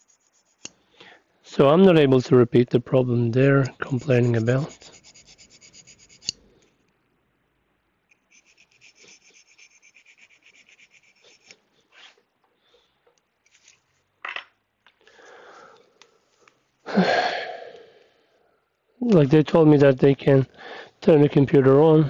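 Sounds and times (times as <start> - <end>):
hands rubbing: 3.7 - 6.4, 8.1 - 12.2.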